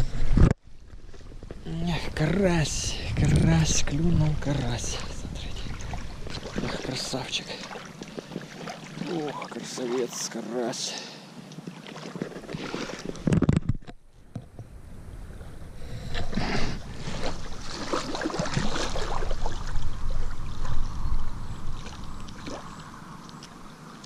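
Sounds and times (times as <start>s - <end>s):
wind rumble on microphone: 0.0s - 7.0s, 13.0s - 24.0s.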